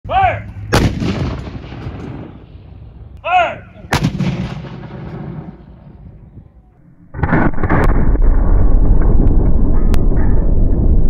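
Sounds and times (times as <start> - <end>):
person shouting a command: 0.0 - 0.5, 3.2 - 3.9
cannon boom and rumble: 0.7 - 3.1, 3.9 - 11.0.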